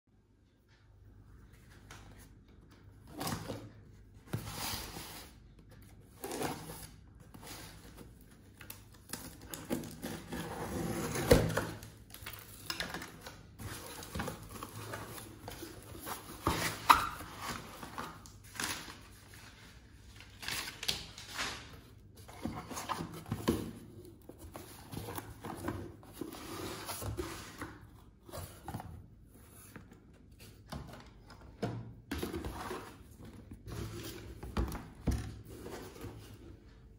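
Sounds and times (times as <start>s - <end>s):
packing paper rustling: 11.4s - 28.7s.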